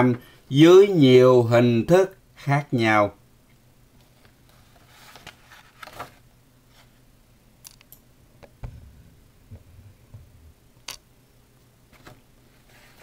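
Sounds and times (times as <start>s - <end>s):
low steady hum: 0.0s - 13.0s
soft low thump: 8.6s - 10.6s.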